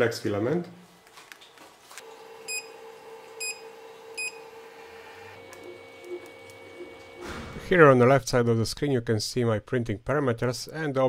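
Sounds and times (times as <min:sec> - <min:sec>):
steady machine hum: 0:02.0 - 0:07.7.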